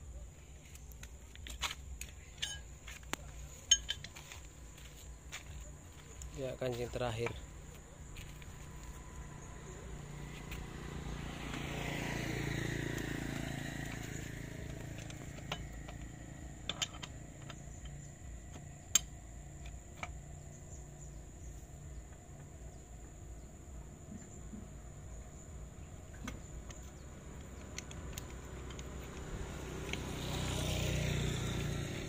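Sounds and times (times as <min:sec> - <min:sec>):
lug wrench metal clicks: 0:00.9 - 0:04.2, 0:13.9 - 0:20.2, 0:26.3 - 0:30.1
vehicle passing by: 0:05.3 - 0:18.5, 0:22.7 - 0:32.0.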